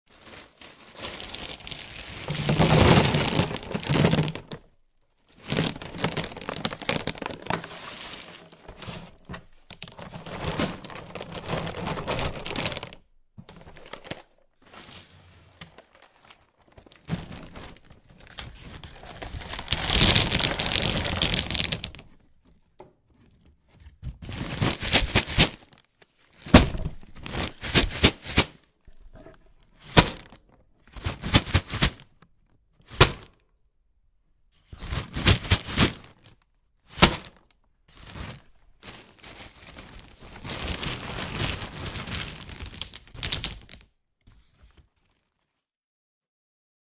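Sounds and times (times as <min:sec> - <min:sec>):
paper bag crinkling: 0:00.1 - 0:22.2, 0:24.2 - 0:32.0, 0:38.0 - 0:45.7
nuts knocking in bag: 0:02.4 - 0:04.6.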